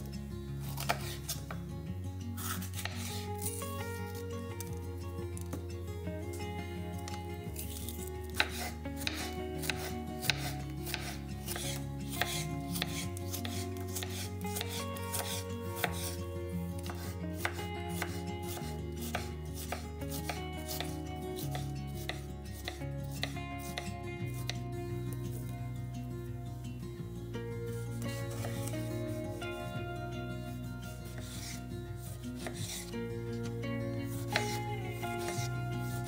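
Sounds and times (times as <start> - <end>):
knife slicing peppers: 0.0 - 1.7, 2.3 - 5.7, 7.0 - 24.6, 27.9 - 29.7, 30.4 - 36.0
soft background music: 0.0 - 36.0
blade tapping cutting board: 2.8 - 3.2, 8.4 - 16.1, 16.8 - 24.6, 32.4 - 32.9, 34.1 - 35.5.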